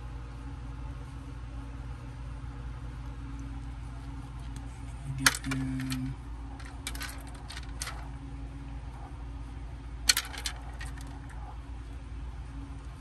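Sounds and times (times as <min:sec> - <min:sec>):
plastic parts clicking: 0:05.2 - 0:08.0, 0:10.1 - 0:11.4.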